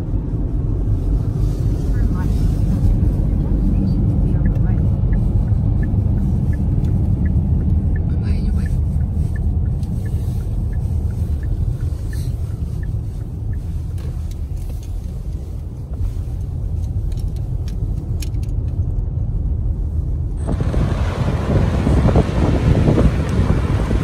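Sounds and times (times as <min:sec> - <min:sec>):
car road noise: 0:00.0 - 0:24.0
wind buffeting microphone: 0:20.4 - 0:24.0.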